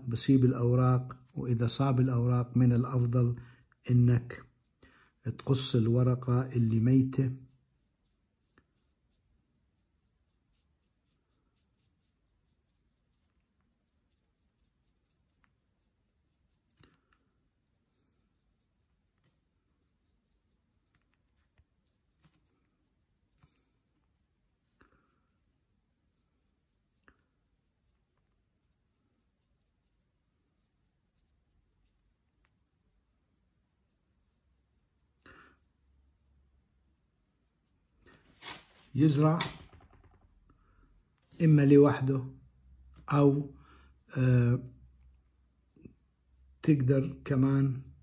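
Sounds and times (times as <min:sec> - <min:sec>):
pencil scratching on paper: 0:00.0 - 0:47.9.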